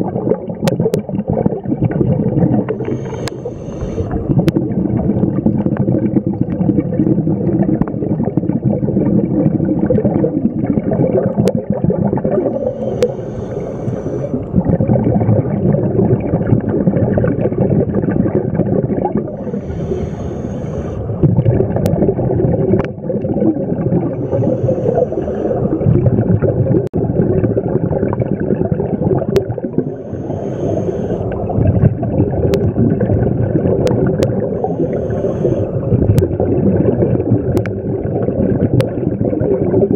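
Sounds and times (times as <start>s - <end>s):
gurgling exhaled bubbles: 0.0s - 39.9s
regulator air hiss: 2.8s - 4.2s, 12.5s - 14.3s, 19.4s - 21.1s, 29.9s - 31.3s, 34.6s - 35.9s.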